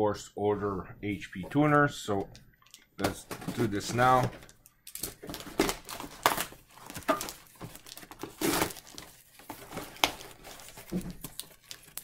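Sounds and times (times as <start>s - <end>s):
paper packaging tearing: 5.3s - 12.0s.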